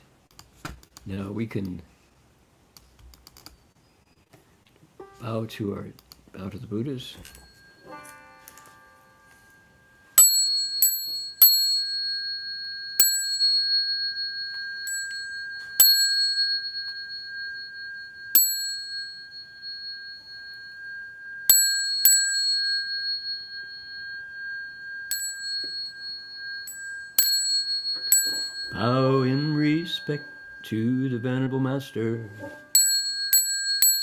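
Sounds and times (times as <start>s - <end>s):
high ringing tone: 7.1s - 34.0s
small metal bell ding: 7.2s - 9.0s, 10.1s - 34.0s.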